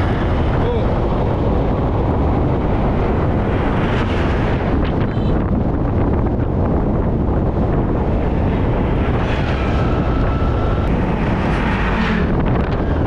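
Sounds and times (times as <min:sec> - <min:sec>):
road noise: 0:00.0 - 0:13.0
wind buffeting microphone: 0:00.0 - 0:13.0.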